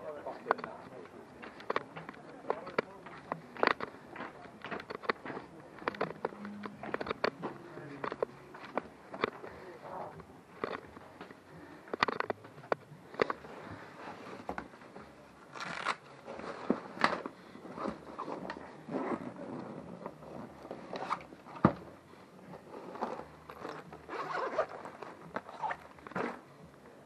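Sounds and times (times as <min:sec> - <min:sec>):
camera rubbing against clothing: 0:22.7 - 0:26.4.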